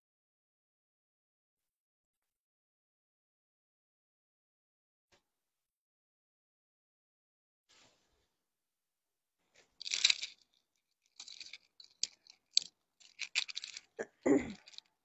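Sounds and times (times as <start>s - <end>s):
cloth and packaging rustling: 9.5s - 14.9s.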